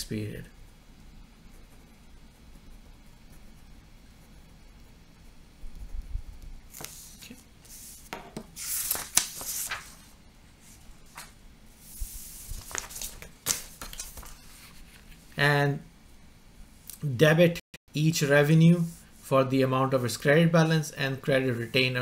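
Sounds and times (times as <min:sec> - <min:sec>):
paper rustling and crackling: 0:06.7 - 0:10.2, 0:11.1 - 0:15.2
paper snapping: 0:08.8 - 0:09.9.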